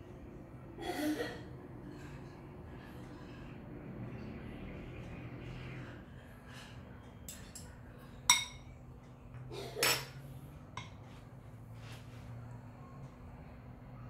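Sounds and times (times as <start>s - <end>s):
fork clinking against glass bowl: 8.3s - 8.7s.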